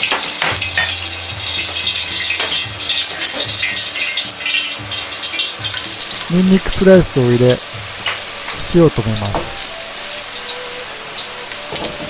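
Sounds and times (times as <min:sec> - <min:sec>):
oil hissing and crackling: 0:00.0 - 0:12.0
gas burner rush: 0:05.6 - 0:12.0.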